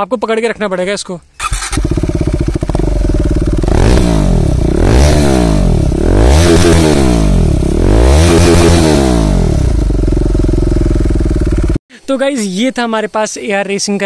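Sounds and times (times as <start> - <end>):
motorcycle engine revving: 1.4 - 11.8.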